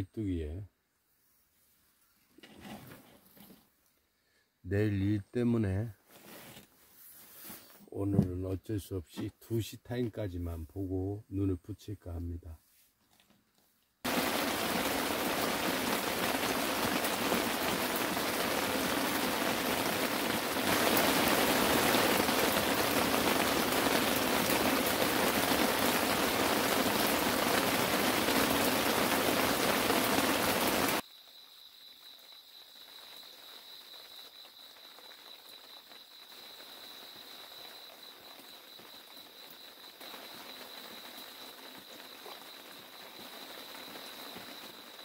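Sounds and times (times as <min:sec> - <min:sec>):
heavy rain falling: 0:14.1 - 0:31.0, 0:32.9 - 0:45.0.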